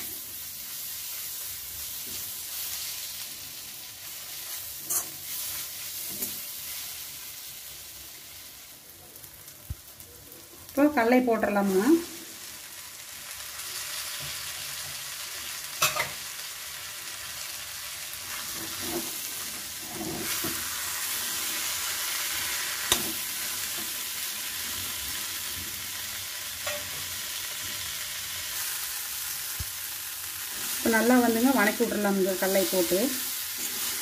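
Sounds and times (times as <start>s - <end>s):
chickpeas sizzling in a pan: 0.0s - 34.0s.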